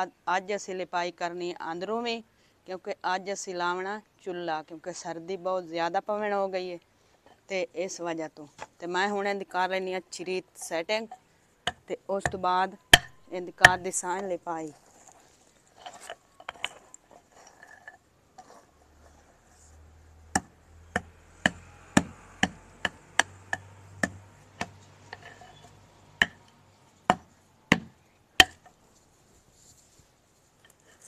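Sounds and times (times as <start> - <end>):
wooden stick knocking on bricks: 11.0 - 13.9, 15.8 - 17.0, 20.3 - 28.8.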